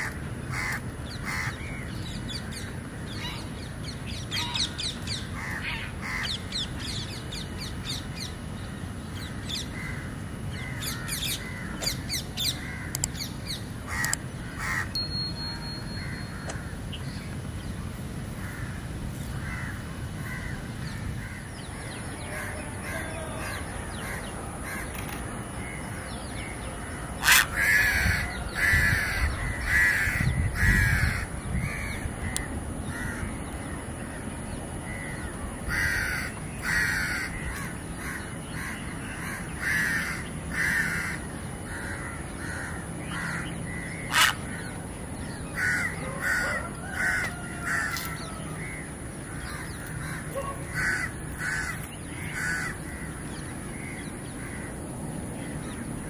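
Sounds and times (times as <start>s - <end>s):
crows cawing: 0.0s - 1.8s, 5.4s - 6.3s, 9.7s - 12.0s, 12.6s - 13.0s, 13.9s - 14.9s, 18.4s - 18.8s, 19.4s - 26.0s, 26.9s - 33.3s, 34.9s - 44.7s, 45.6s - 54.8s.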